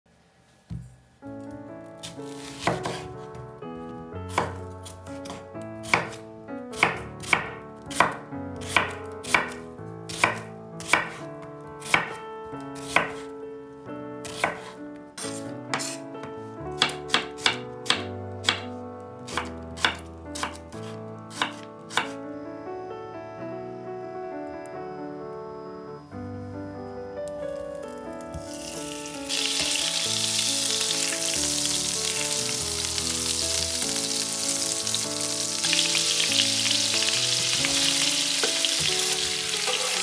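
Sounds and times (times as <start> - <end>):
soft background music: 0.9 - 40.0
knife chopping on cutting board: 2.0 - 3.4, 4.3 - 6.2, 6.8 - 11.2, 11.8 - 12.2, 12.8 - 13.3, 14.2 - 16.0, 16.8 - 18.7, 19.3 - 22.2.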